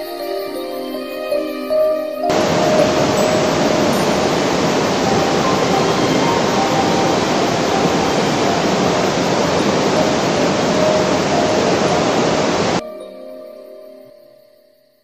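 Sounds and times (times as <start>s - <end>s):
water rushing over rocks: 2.3s - 12.8s.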